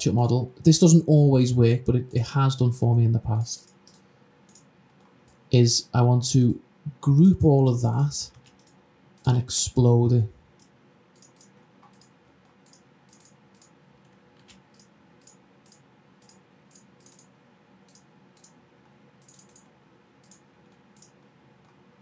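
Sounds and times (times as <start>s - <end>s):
faint steady hiss: 0.0s - 22.0s
computer mouse clicking: 3.6s - 5.4s, 8.3s - 9.3s, 10.5s - 18.6s, 19.2s - 21.8s.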